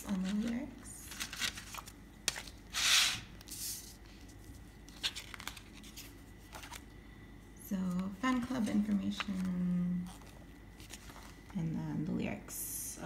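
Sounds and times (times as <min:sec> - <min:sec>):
paper rustling and sliding: 0:00.2 - 0:06.8.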